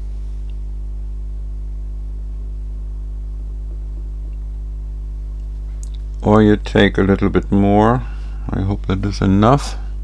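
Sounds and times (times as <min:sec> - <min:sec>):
steady low electrical hum: 0:00.0 - 0:10.0.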